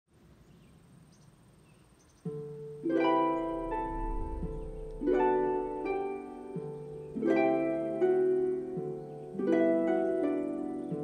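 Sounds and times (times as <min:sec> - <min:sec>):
plucked string music: 0:02.3 - 0:11.0.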